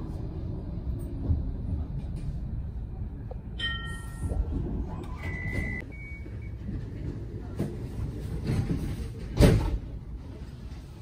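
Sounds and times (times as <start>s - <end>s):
tram running on rails: 0.0s - 11.0s.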